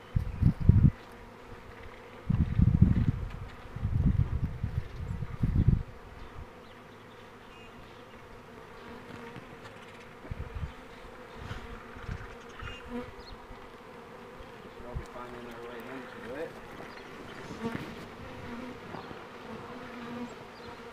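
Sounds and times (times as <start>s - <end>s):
bees buzzing: 0.0s - 20.9s
low microphone rumbles: 2.3s - 5.9s.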